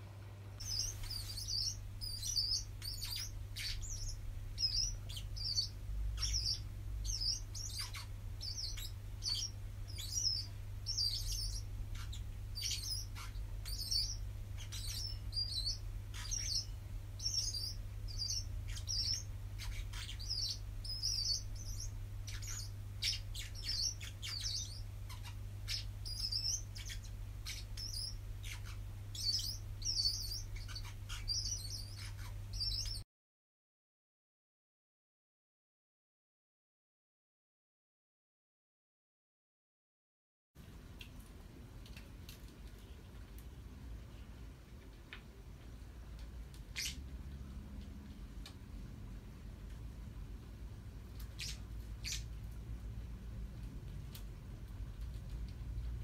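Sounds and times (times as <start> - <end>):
steady low hum: 0.0 - 33.0, 40.6 - 56.0
parrots chirping: 0.6 - 33.0, 46.2 - 48.2, 50.8 - 56.0.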